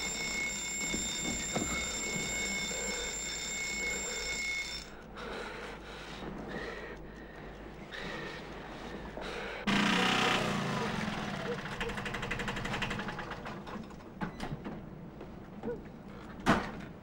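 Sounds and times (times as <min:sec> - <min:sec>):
alarm clock ringing: 0:00.0 - 0:05.0.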